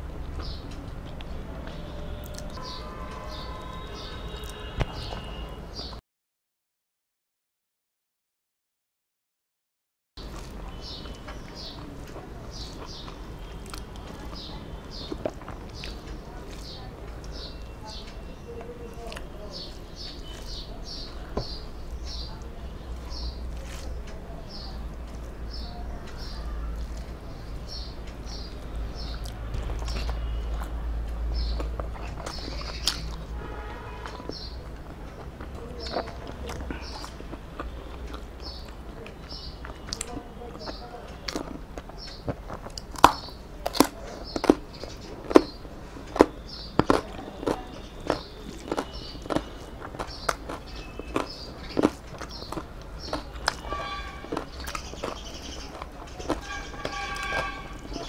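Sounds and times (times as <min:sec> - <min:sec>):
chewing crisp raw vegetables: 0:00.0 - 0:05.4, 0:10.2 - 0:58.0
small bird chirping: 0:44.2 - 0:58.0.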